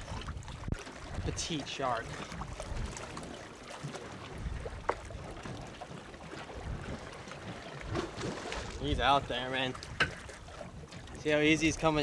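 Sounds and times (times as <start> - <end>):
water sloshing against hull: 0.0 - 12.0
wind: 0.0 - 12.0.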